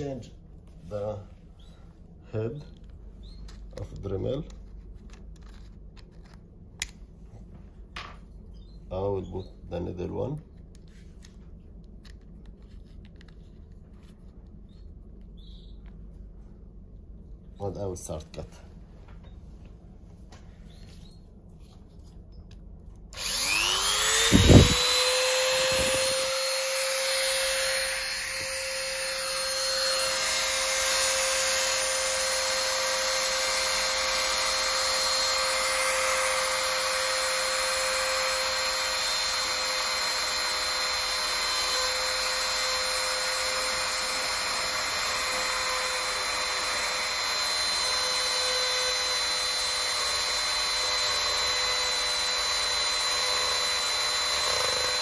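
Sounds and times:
rotary tool whining: 2.6s - 6.4s, 23.0s - 55.0s.

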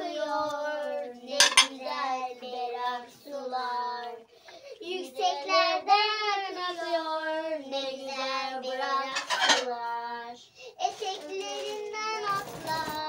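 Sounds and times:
rustling: 10.8s - 13.0s.

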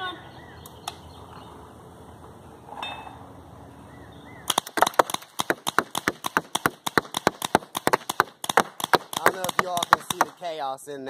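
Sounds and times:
paintballs hitting cardboard: 4.5s - 10.5s
paintball guns firing: 4.5s - 10.6s.

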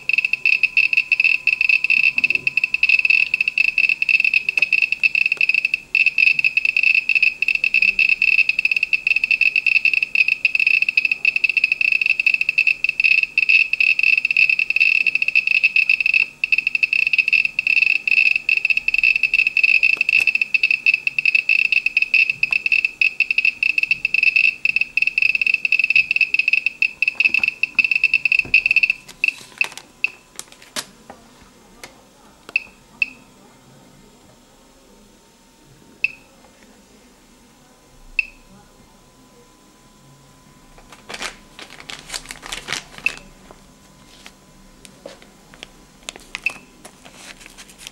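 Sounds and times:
geiger counter beeping: 0.0s - 30.2s, 32.6s - 33.3s, 36.0s - 36.3s, 38.2s - 38.5s, 43.0s - 43.4s, 46.4s - 46.8s.

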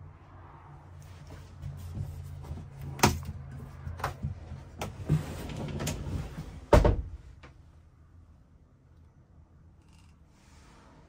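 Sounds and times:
sliding door moving along track: 4.3s - 6.8s.

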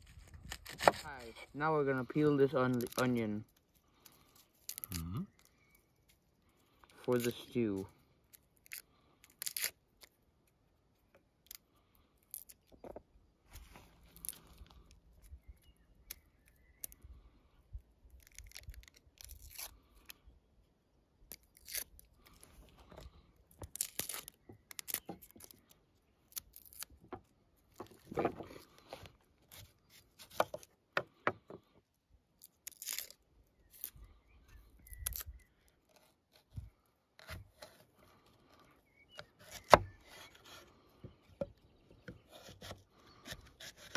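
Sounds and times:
onion skin crackling and tearing: 0.0s - 1.5s, 2.5s - 7.6s, 8.2s - 10.6s, 11.4s - 12.8s, 13.9s - 17.0s, 18.0s - 20.2s, 21.2s - 30.6s, 32.3s - 34.2s, 34.8s - 38.6s.

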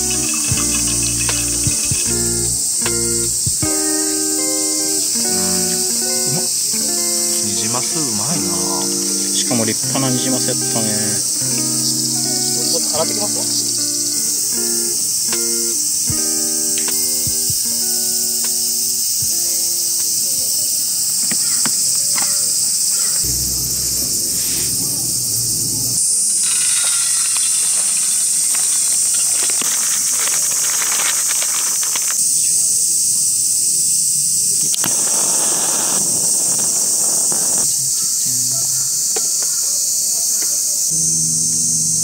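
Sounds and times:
rice grains pouring into tin: 0.0s - 2.1s, 26.3s - 32.2s
insect chorus: 0.0s - 42.0s.

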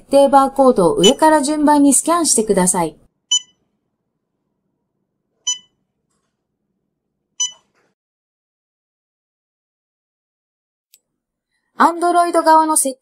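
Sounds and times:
barcode scanner beeping: 1.0s - 1.3s, 3.3s - 3.6s, 5.4s - 5.8s, 7.4s - 7.7s.

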